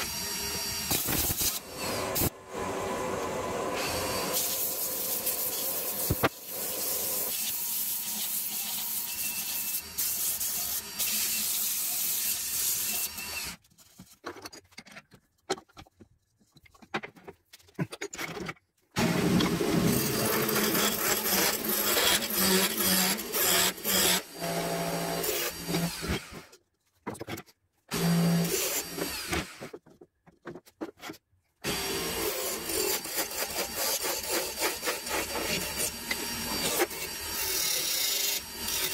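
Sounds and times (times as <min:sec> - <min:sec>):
gouge scraping spinning wood: 0:19.0 - 0:24.2, 0:32.0 - 0:38.9.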